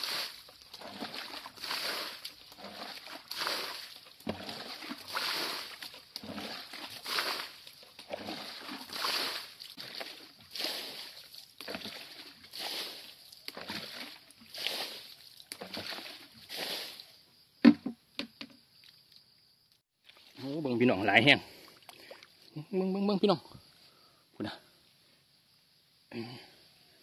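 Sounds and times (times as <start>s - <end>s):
boots splashing through water: 0.0s - 17.0s.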